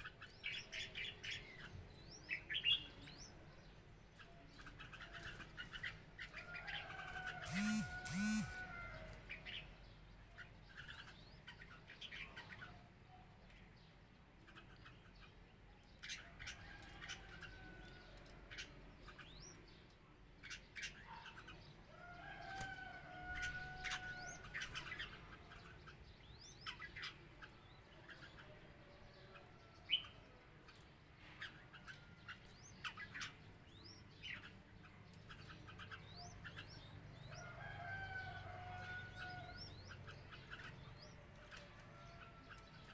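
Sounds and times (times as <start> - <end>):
birds chirping: 0.0 - 42.9
drawn-out bird calls: 4.2 - 12.9.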